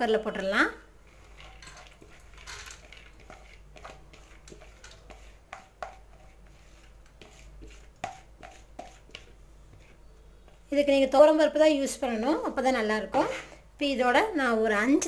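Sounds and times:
lentils dropping into metal pot: 0:01.4 - 0:03.2.

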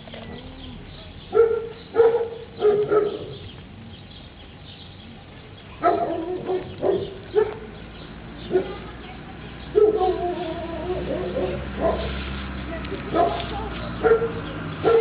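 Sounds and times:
dog barking: 0:01.3 - 0:03.4, 0:05.8 - 0:07.8, 0:08.4 - 0:08.9, 0:09.7 - 0:12.1, 0:13.1 - 0:15.0.

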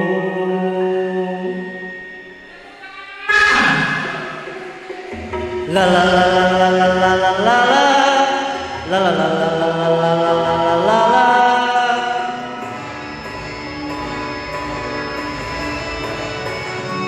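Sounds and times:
man singing through microphone: 0:00.0 - 0:02.0, 0:05.6 - 0:12.6.

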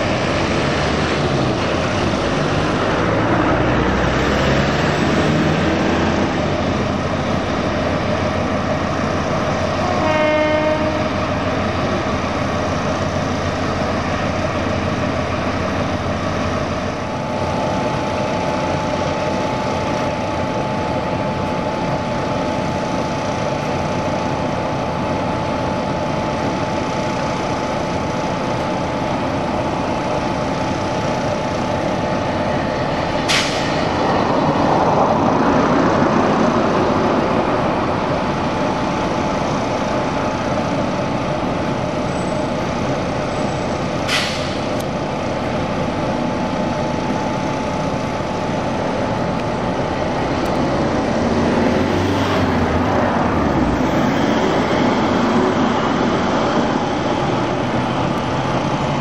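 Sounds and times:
diesel locomotive engines running: 0:00.0 - 0:59.0
locomotive horn blast: 0:09.7 - 0:11.5.

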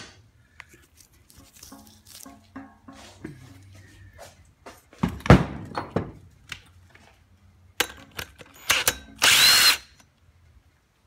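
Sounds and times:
metal tools knocking and clanking: 0:01.7 - 0:03.6, 0:05.0 - 0:06.2.

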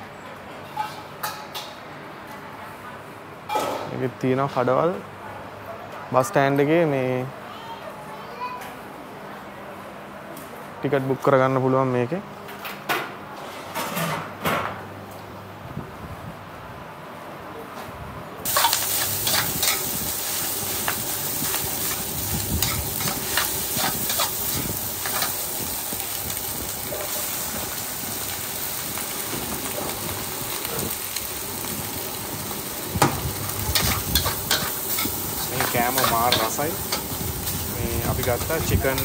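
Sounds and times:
food sizzling in a wok: 0:18.4 - 0:39.0.

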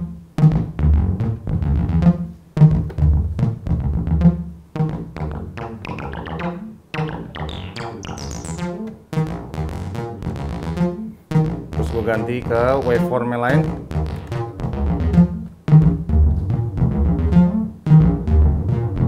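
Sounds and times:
synthesizer bass line: 0:00.0 - 0:19.0.

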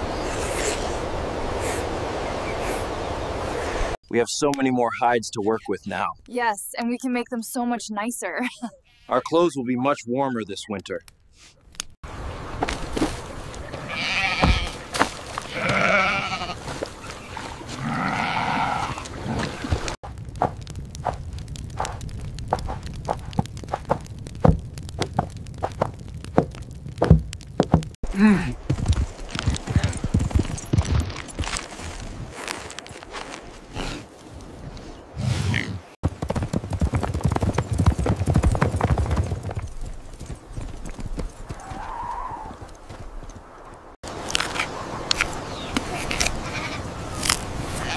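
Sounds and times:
goats bleating: 0:13.8 - 0:14.8, 0:15.5 - 0:16.6, 0:17.8 - 0:19.0, 0:46.3 - 0:46.8
horse hoofbeats on dirt: 0:22.4 - 0:32.2, 0:36.0 - 0:43.8.

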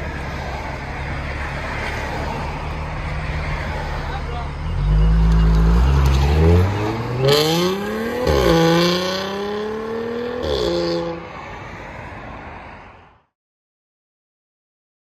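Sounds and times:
car engine accelerating: 0:00.0 - 0:11.2.

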